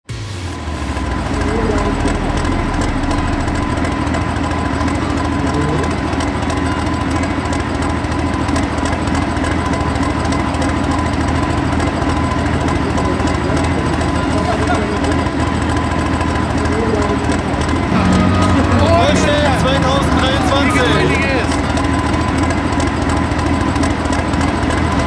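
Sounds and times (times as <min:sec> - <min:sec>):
diesel tractor engine running: 0:00.1 - 0:25.0.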